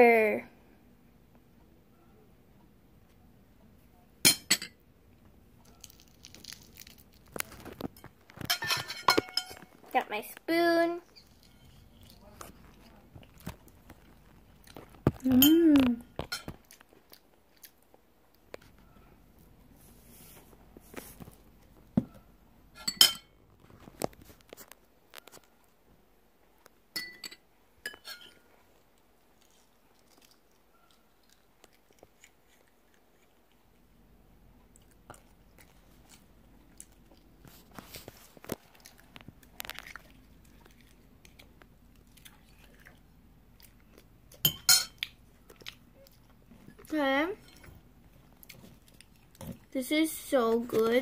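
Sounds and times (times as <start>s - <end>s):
chewing: 5.6s - 8.5s, 11.0s - 19.1s, 28.8s - 33.9s, 34.6s - 49.7s
eggshell cracking: 5.6s - 8.5s
metal spoon clinking and scraping: 8.0s - 9.7s, 27.0s - 28.4s.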